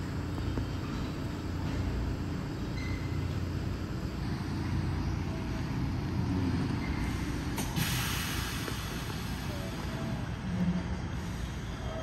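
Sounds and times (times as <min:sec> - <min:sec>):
subway train rumbling: 0:00.0 - 0:12.0
sudden hiss: 0:07.0 - 0:10.2.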